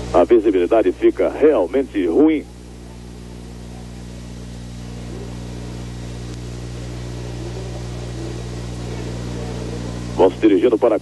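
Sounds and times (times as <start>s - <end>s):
recording hum and hiss: 0.0s - 11.0s.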